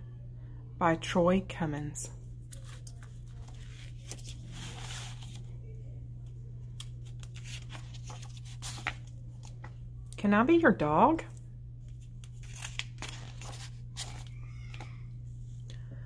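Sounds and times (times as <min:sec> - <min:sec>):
steady low hum: 0:00.0 - 0:16.0
book pages turning: 0:02.4 - 0:05.6, 0:06.2 - 0:09.8, 0:11.8 - 0:15.0.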